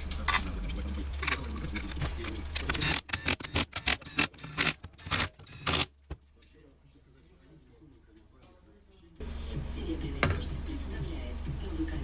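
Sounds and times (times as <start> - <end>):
low steady hum: 0.0 - 12.0
tools and parts clicking: 1.2 - 6.0.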